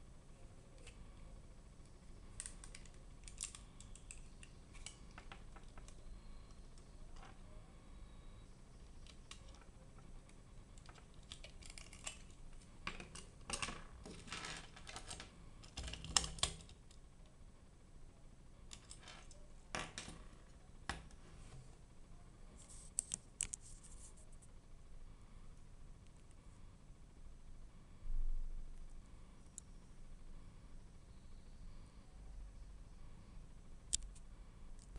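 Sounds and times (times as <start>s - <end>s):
plastic toys clicking and clattering: 10.8s - 16.8s.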